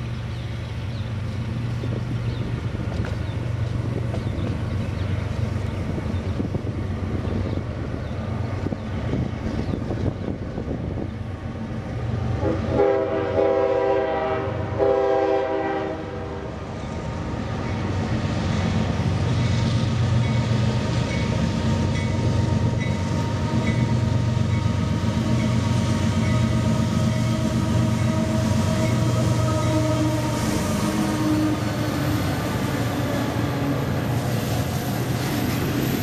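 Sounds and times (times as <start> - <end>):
diesel train engines rumbling: 0.0 - 36.0
train air horn blasts: 12.4 - 16.5, 26.4 - 33.7.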